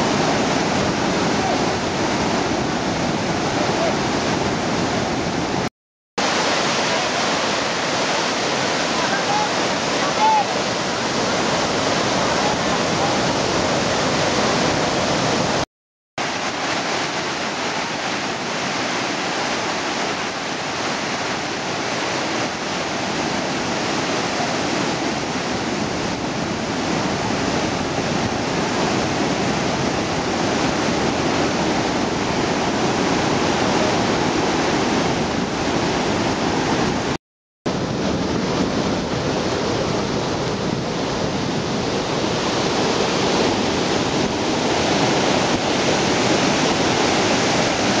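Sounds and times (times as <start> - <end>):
floodwater rushing through spillway: 0.0 - 15.6, 16.2 - 48.0.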